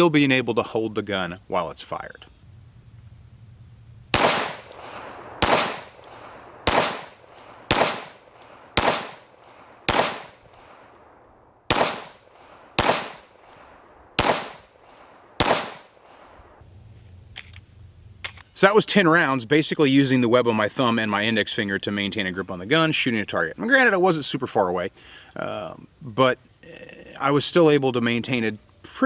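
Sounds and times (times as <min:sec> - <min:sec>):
pistol shots: 0:04.1 - 0:16.4.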